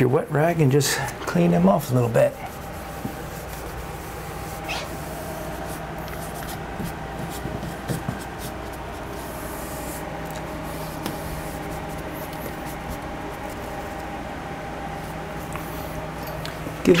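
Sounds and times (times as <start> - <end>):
low background hum: 0.0 - 17.0
damp rag wiping wood: 1.8 - 13.9.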